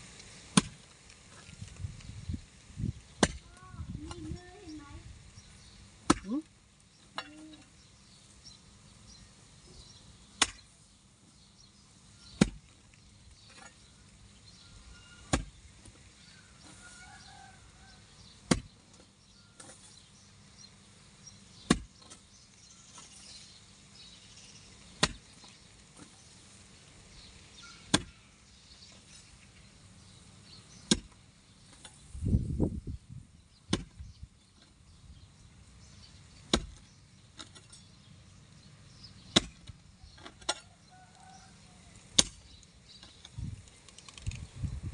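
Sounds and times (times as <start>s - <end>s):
hoe chopping into dry ground: 0.5s - 0.8s, 3.2s - 3.4s, 6.0s - 6.3s, 10.4s - 10.7s, 12.3s - 12.8s, 15.2s - 15.6s, 18.4s - 18.8s, 21.6s - 22.3s, 24.9s - 26.2s, 27.8s - 28.2s, 30.8s - 32.0s, 33.7s - 34.1s, 36.5s - 36.9s, 39.2s - 39.8s, 42.1s - 42.5s.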